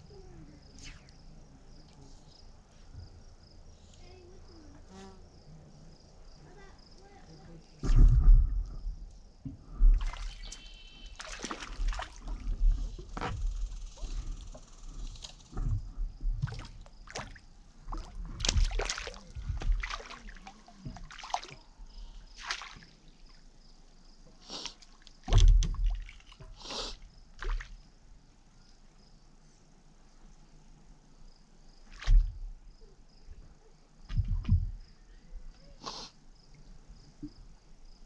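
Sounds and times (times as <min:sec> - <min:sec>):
knocks and rustles: 0:07.8 - 0:10.1, 0:11.8 - 0:19.9, 0:25.3 - 0:26.6, 0:32.0 - 0:32.6, 0:34.1 - 0:34.9
water lapping against board: 0:09.9 - 0:13.4, 0:15.6 - 0:21.7, 0:22.3 - 0:23.1, 0:24.6 - 0:27.8.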